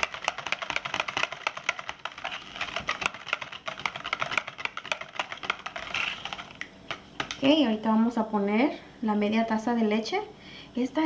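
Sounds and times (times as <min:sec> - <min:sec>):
whisk clicking and scraping a pan: 0:00.0 - 0:07.4.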